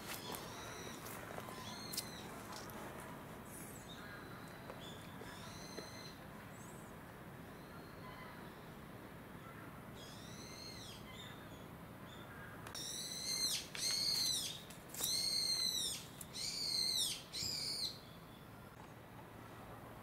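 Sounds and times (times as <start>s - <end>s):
bird calling: 0.0s - 2.7s, 3.5s - 6.9s, 9.4s - 18.4s.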